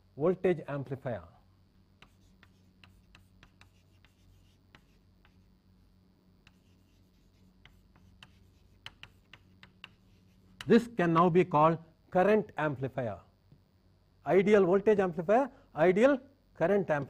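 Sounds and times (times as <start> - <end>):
steady low hum: 0.0 - 17.0
chalk tapping on blackboard: 2.0 - 5.5, 6.4 - 10.8.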